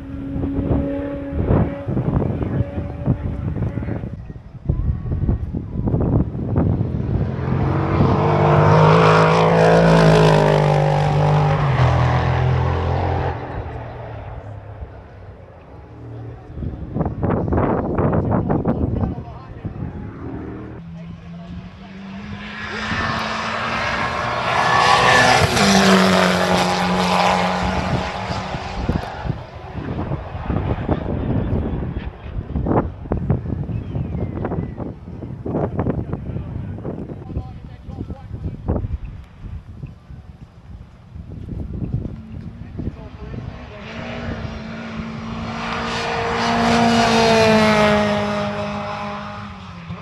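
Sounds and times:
racing car engine at high revs: 0.0 - 4.2, 6.0 - 18.6, 19.5 - 33.4, 41.5 - 50.0
wind gusts on microphone: 0.0 - 20.9, 21.7 - 50.0.

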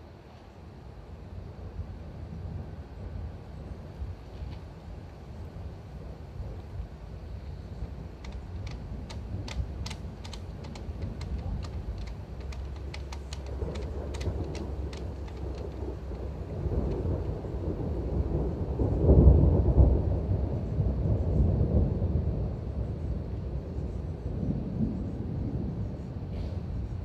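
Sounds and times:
thunder rumbling: 1.2 - 27.0
raindrops ticking: 7.4 - 17.7.

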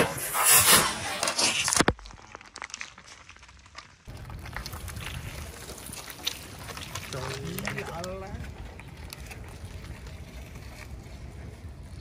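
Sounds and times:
plastic cups crunching under tyre: 1.0 - 12.0.

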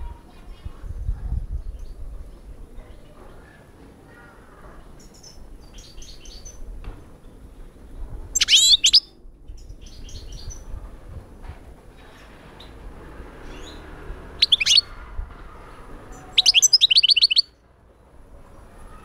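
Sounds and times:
fast bird warbling: 8.4 - 9.1, 14.4 - 14.9, 16.3 - 17.5
finch chirping: 8.4 - 10.6, 14.4 - 14.9, 16.2 - 17.5.

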